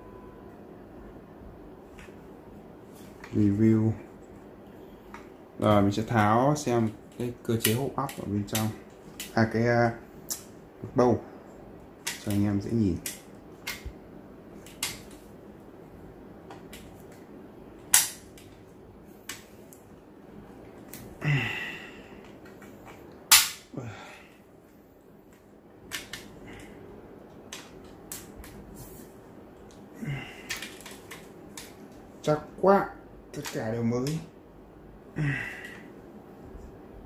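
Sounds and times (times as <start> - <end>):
loud metallic snaps: 17.8 - 18.5, 22.9 - 23.8.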